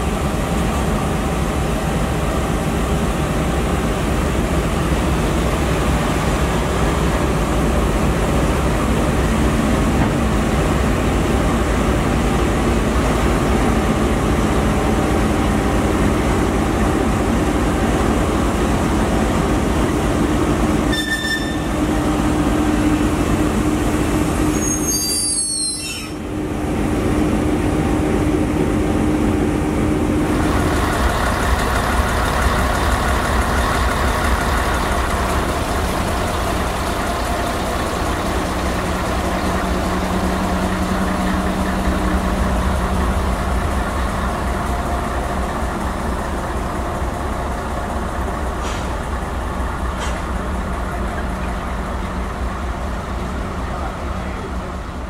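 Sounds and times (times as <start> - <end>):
diesel locomotive engine running: 0.0 - 55.0
track maintenance machine passing: 0.0 - 55.0
train wheels on rails: 0.0 - 55.0
high wheel squeal: 20.9 - 21.7, 24.5 - 26.2.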